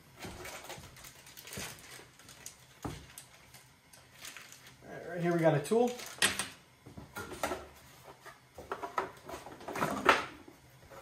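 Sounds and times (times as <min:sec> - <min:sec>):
plastic bags crinkling: 0:00.2 - 0:06.5.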